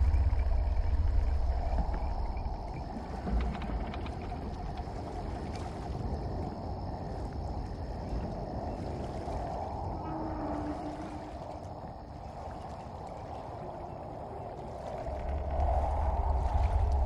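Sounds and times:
deep low rumble: 0.0 - 4.8, 15.1 - 17.0
flowing water rushing: 0.0 - 17.0.

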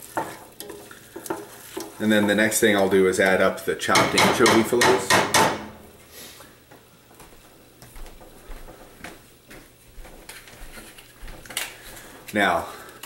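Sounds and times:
onions sizzling in oil: 0.0 - 3.3.

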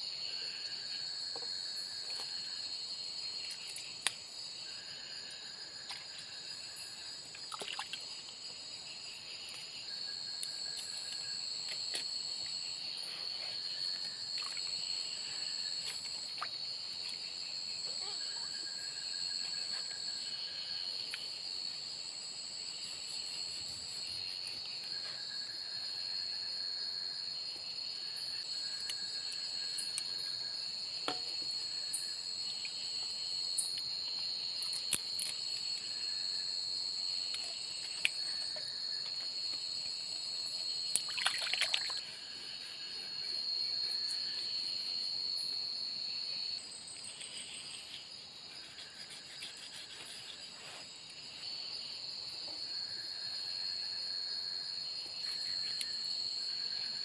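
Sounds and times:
insect calls: 0.0 - 57.0
insects trilling: 0.0 - 57.0.

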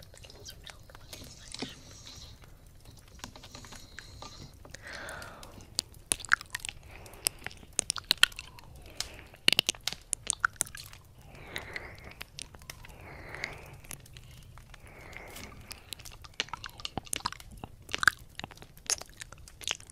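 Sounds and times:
breathy mouth noise: 0.0 - 19.9
wet mouth clicks and smacks: 0.0 - 19.9.

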